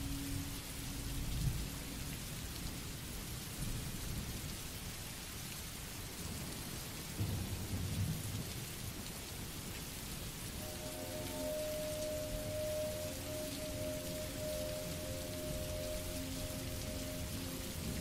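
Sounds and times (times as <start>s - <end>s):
steady rain: 0.0s - 18.0s
thunder rumbling: 10.6s - 18.0s.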